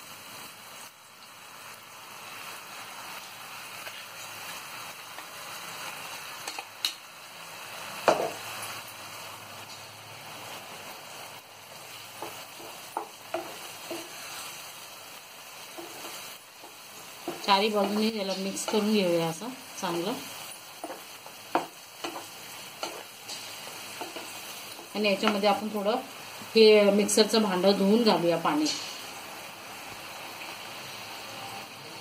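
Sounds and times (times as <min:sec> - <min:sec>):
oil sizzling in a frying pan: 0:00.0 - 0:32.0
sharp knocks on pan: 0:08.1 - 0:08.4, 0:20.8 - 0:22.2
wooden spatula stirring: 0:12.2 - 0:14.6, 0:15.6 - 0:19.0, 0:20.8 - 0:25.5.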